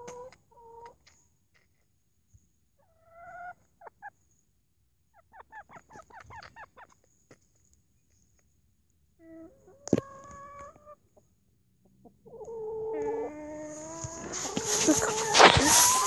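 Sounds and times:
chickens clucking and calling: 0.0 - 1.2, 2.8 - 4.4, 5.1 - 7.5, 9.2 - 16.0
rustling: 13.0 - 16.0.

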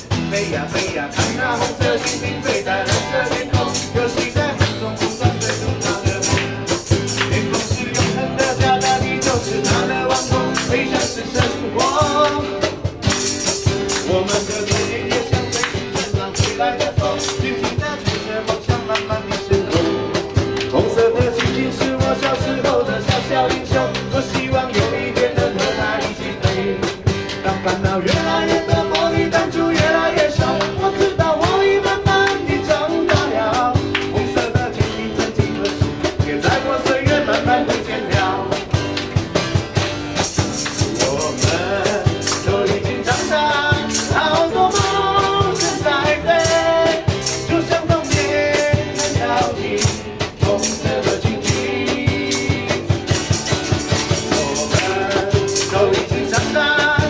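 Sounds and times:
man singing into microphone: 0.0 - 13.0, 14.0 - 38.7, 40.8 - 53.1, 54.1 - 57.0
electric bass: 0.0 - 57.0
strummed acoustic guitar: 0.0 - 57.0
listeners clapping along: 4.6 - 24.5, 28.7 - 34.6, 35.2 - 47.0.

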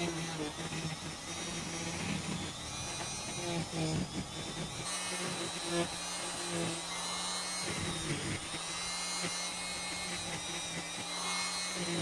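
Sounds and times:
straight grinder motor whine: 0.0 - 12.0.

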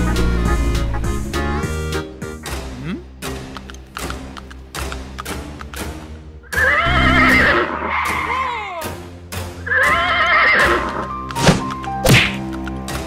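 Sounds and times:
horse whinnying: 6.5 - 8.5, 9.6 - 11.1.

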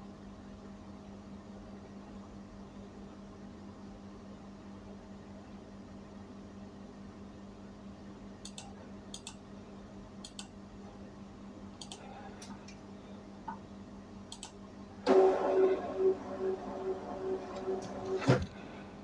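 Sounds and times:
low steady hum: 0.0 - 19.0
computer mouse clicking: 8.4 - 9.4, 10.2 - 10.5, 11.8 - 12.8, 14.3 - 14.6
inkjet printer whirring: 15.1 - 18.9.

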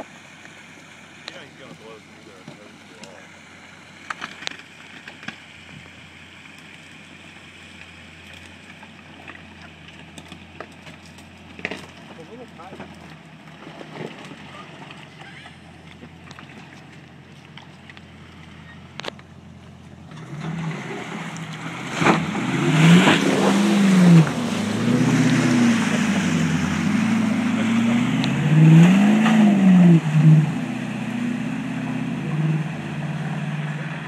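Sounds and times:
tyres churning mud and water: 0.0 - 34.0
car engine revving hard: 20.1 - 34.0.

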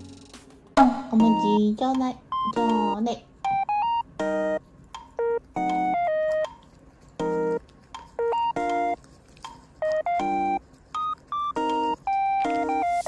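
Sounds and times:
beeping synth melody: 0.8 - 4.6, 5.2 - 6.5, 7.2 - 7.6, 8.2 - 9.0, 9.8 - 13.0.

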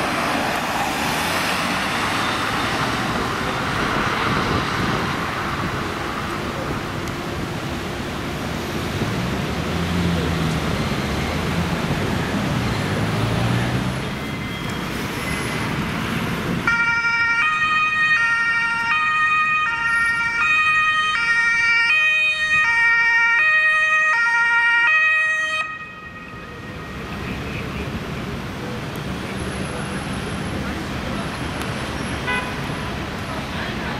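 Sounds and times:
road traffic: 0.0 - 33.9
two-tone ambulance siren: 16.6 - 27.2.

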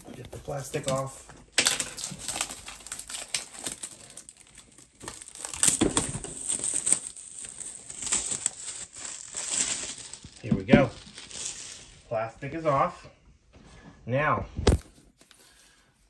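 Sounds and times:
plastic wrap crinkling: 0.7 - 12.1.

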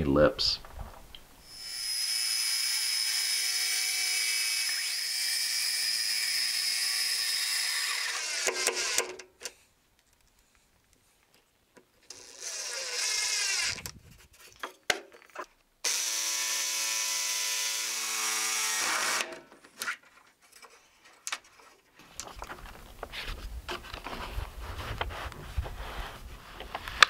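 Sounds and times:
cordless drill driving a screw: 1.5 - 9.2, 12.1 - 13.9, 15.9 - 19.3
jigsaw cutting plywood: 1.5 - 9.2, 12.1 - 13.8, 15.9 - 19.4.

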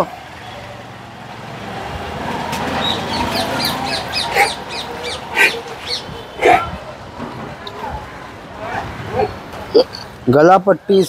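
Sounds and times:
street background hum: 0.0 - 11.0
short sharp calls: 2.8 - 6.7.

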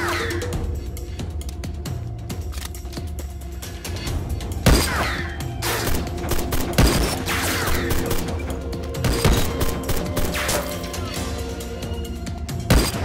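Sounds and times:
dramatic background score: 0.0 - 13.0
gunshots: 4.6 - 10.8, 12.7 - 13.0.

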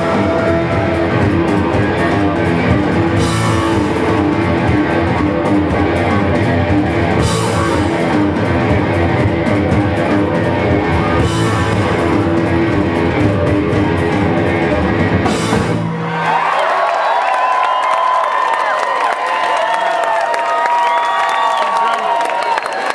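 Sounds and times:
live punk rock band: 0.0 - 16.2
crowd cheering and whistling: 0.0 - 22.9.

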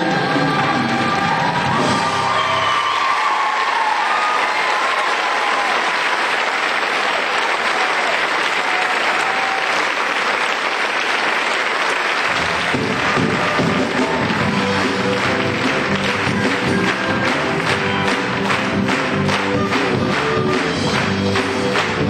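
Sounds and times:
audience applauding: 0.0 - 22.0
live band playing: 12.3 - 22.0.

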